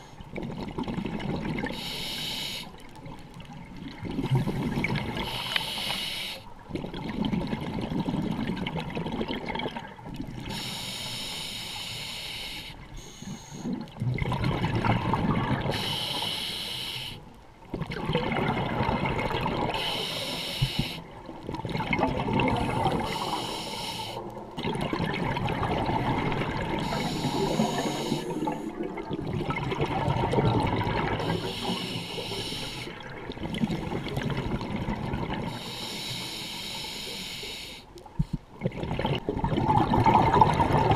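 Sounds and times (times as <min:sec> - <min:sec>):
regulator hissing inhale: 0:01.7 - 0:02.8, 0:04.6 - 0:06.5, 0:10.5 - 0:13.8, 0:15.7 - 0:17.3, 0:19.8 - 0:21.1, 0:22.6 - 0:24.3, 0:26.8 - 0:28.8, 0:31.2 - 0:33.0, 0:35.5 - 0:37.9
bubbling exhale underwater: 0:06.7 - 0:10.7, 0:13.6 - 0:16.3, 0:17.7 - 0:20.3, 0:21.2 - 0:23.4, 0:24.1 - 0:35.6, 0:38.6 - 0:40.9.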